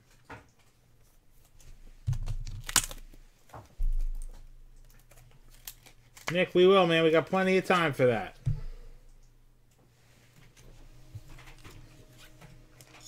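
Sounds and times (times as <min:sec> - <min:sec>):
faint rustling of cards: 0:00.0 - 0:13.0.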